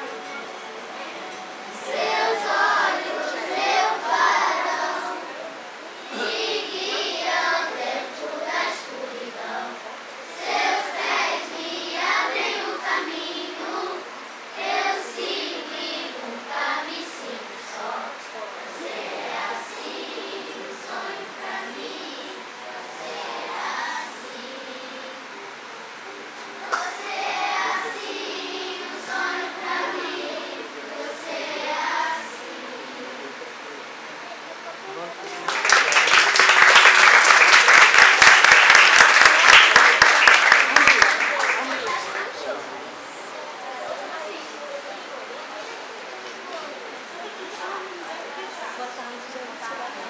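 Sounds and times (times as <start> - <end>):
children singing together: 0.0 - 33.4.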